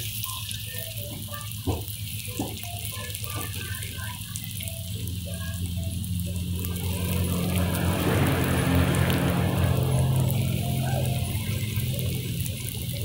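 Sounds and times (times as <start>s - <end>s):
food sizzling in hot oil: 0.0s - 13.0s
low hum: 4.8s - 13.0s.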